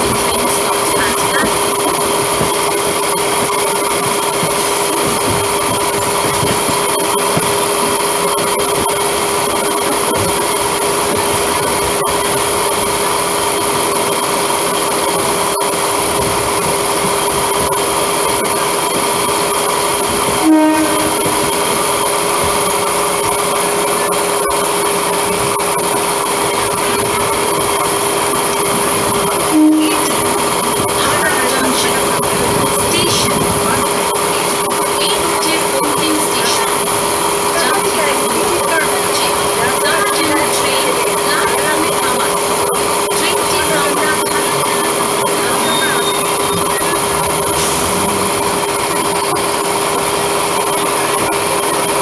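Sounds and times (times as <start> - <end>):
train running noise: 0.0 - 52.0
short sharp sound: 47.0 - 48.9.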